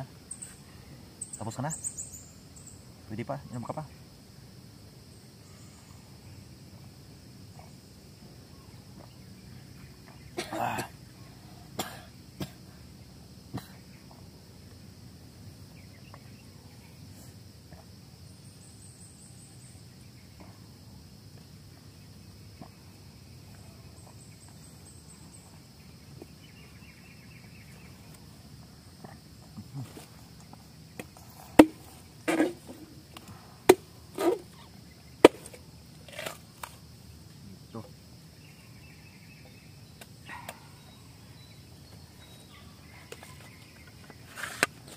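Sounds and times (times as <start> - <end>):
faint chirps: 0.0 - 4.3, 5.0 - 6.9
high insect drone: 0.0 - 44.9
coconut knocking on ground: 31.0 - 32.8, 33.7 - 34.4, 35.2 - 35.6.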